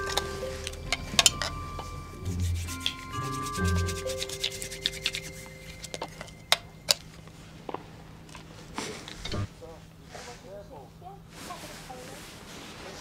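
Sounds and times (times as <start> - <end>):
soft music with held notes: 0.0 - 7.3
handheld device rubbing and clicking: 2.3 - 6.6.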